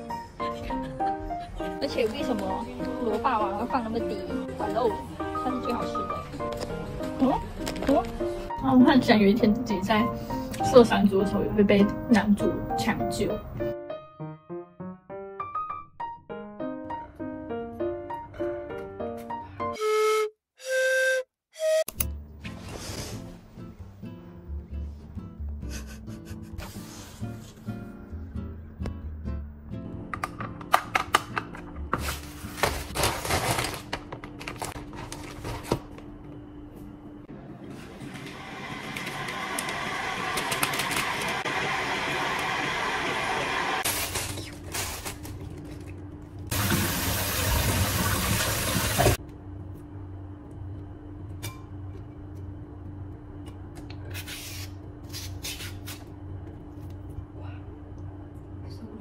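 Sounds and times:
plastic bag crinkling: 32.3 - 35.7, 43.8 - 45.9
vegetable peeler scraping cucumber: 54.1 - 56.0.

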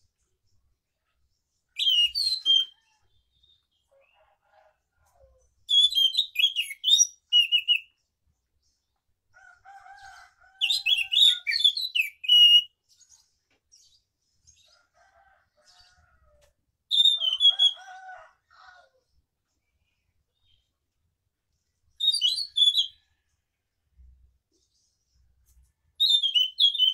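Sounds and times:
bird singing high-pitched phrases: 1.7 - 4.2, 5.4 - 8.1, 10.6 - 13.3, 16.9 - 18.0, 21.9 - 23.1, 26.0 - 26.9.

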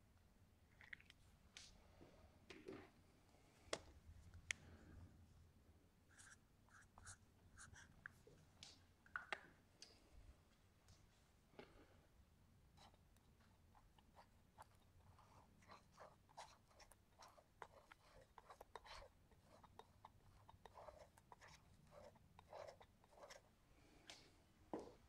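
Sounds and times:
palette knife scraping paint on paper: 13.7 - 23.5.

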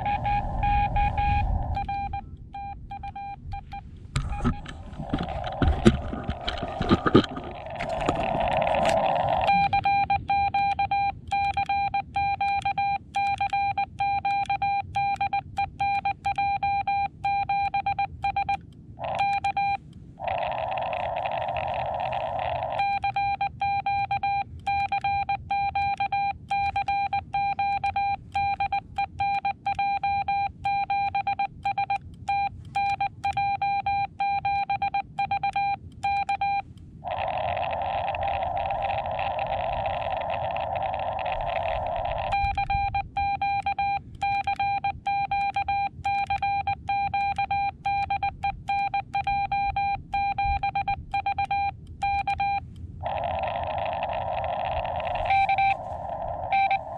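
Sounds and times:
radio receiver hiss: 0.0 - 2.2, 37.1 - 42.5, 53.1 - 56.9
morse code beeps: 0.0 - 56.9.

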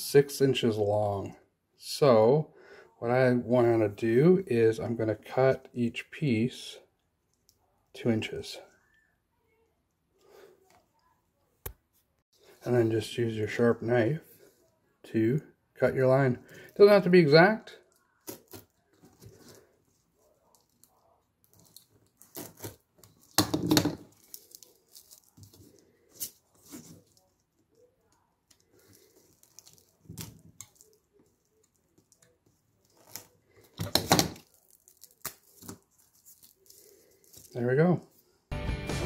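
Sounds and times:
velcro ripping apart: 32.9 - 37.3.

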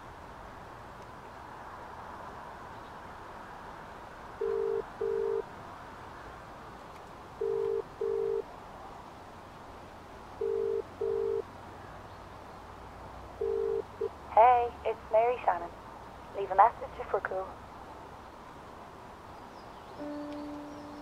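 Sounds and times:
telephone ringback double beeps: 4.4 - 5.4, 7.4 - 8.4, 10.4 - 11.4, 13.4 - 13.8.

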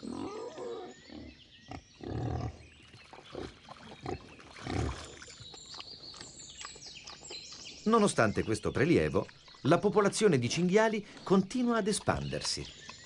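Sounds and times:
wild boar grunting: 0.0 - 5.2.

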